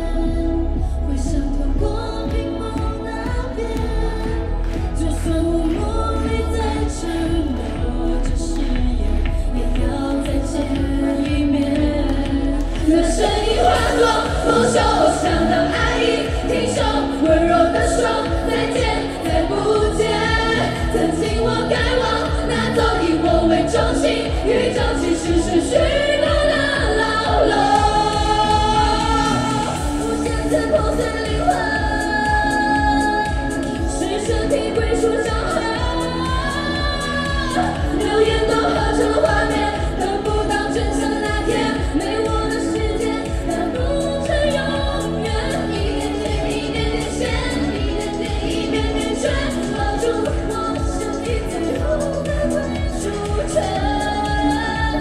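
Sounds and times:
female voices singing pop song: 0.0 - 55.0.

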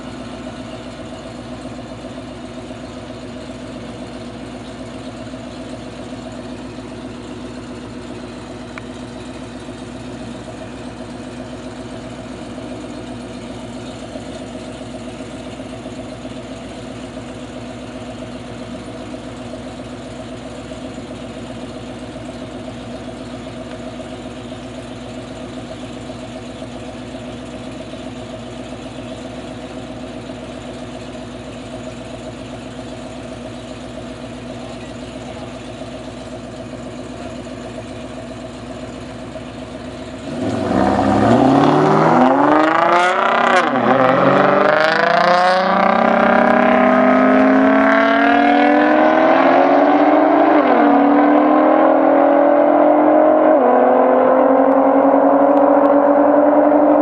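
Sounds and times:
car engines idling: 0.0 - 57.0
car engines revving hard: 39.5 - 57.0.

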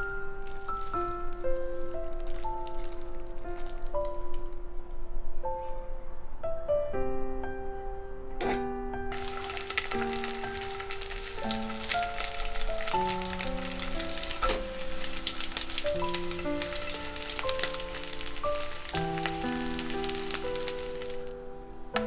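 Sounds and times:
soft piano music: 0.0 - 22.0
rice balls sizzling in oil: 9.1 - 21.3.

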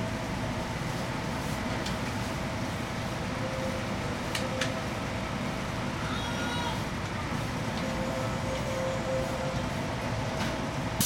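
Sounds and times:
train electrical hum: 0.0 - 11.0.

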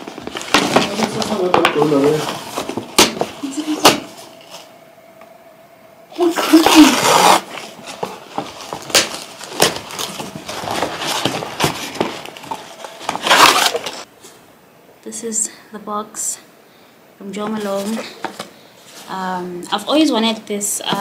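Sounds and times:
packaging rustling and scraping: 0.0 - 4.7, 6.2 - 14.1.

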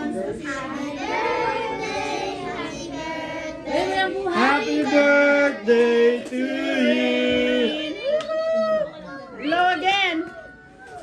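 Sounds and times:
children and women singing: 0.0 - 8.1.

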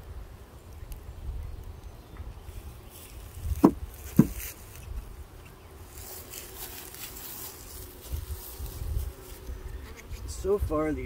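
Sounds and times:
bees buzzing: 0.1 - 11.0
sharp knocks: 3.6 - 4.4.

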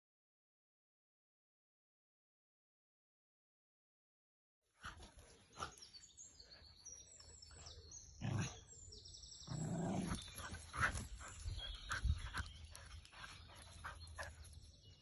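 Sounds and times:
dogs growling: 8.0 - 8.8, 9.4 - 11.8.

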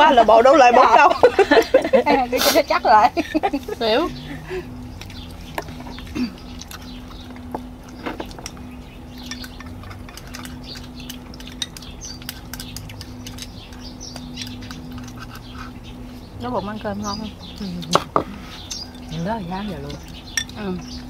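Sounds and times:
steady low hum: 0.0 - 21.0
chopsticks clinking on bowls: 4.1 - 16.0, 17.1 - 21.0.

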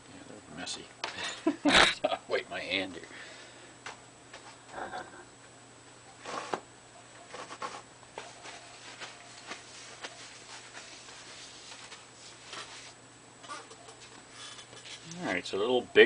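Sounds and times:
scratchy handling rustles: 7.3 - 13.0.

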